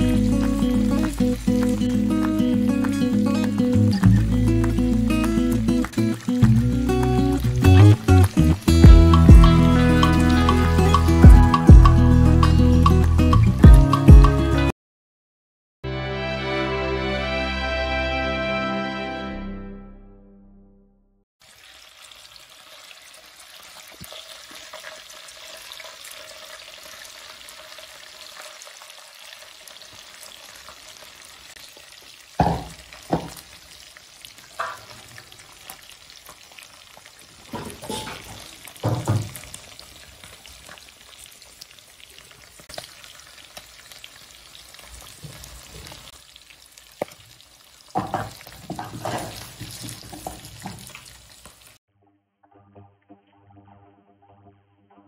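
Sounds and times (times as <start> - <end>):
meat sizzling in oil: 0.0 - 11.2, 21.4 - 51.8
knocks and scrapes on griddle: 37.4 - 39.5, 48.0 - 51.0.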